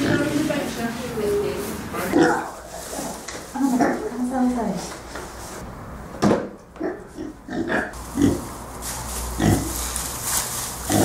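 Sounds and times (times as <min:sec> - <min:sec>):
piglets grunting: 0:02.1 - 0:03.2, 0:06.8 - 0:08.5, 0:09.4 - 0:09.8.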